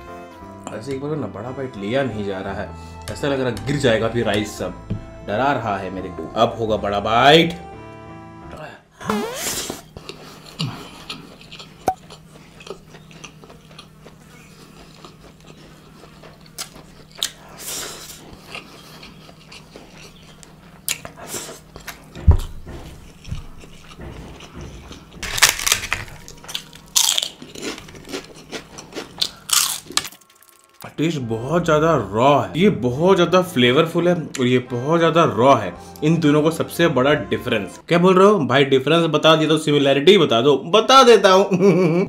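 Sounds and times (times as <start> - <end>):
biting a mouthful: 9.2 - 30.2
wet chewing and mouth smacks: 10.0 - 30.9.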